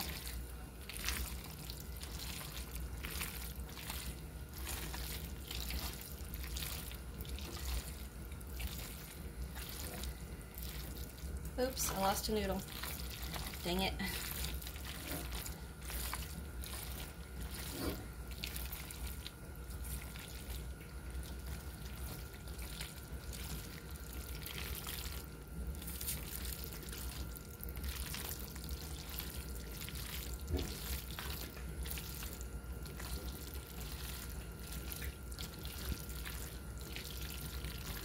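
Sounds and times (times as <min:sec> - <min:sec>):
wet squishing of stirred noodles: 0:00.0 - 0:38.0.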